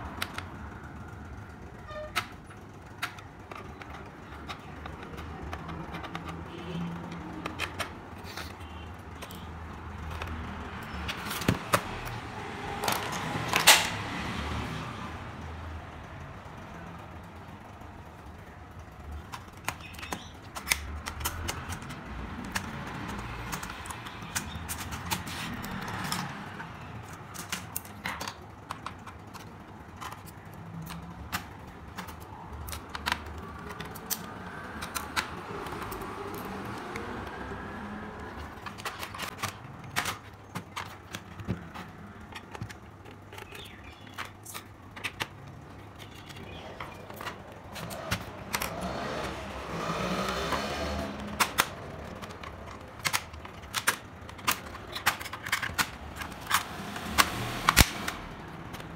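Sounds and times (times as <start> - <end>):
plastic clicks and snaps: 19.1 - 49.4, 50.3 - 58.9.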